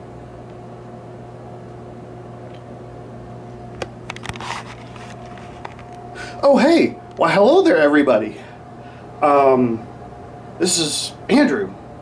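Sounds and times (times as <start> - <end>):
machine hum: 0.0 - 12.0.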